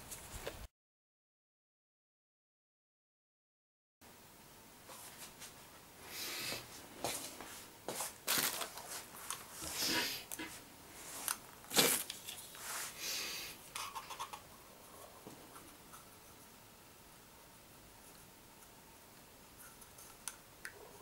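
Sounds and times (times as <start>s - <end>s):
paper rustling: 7.9s - 10.0s.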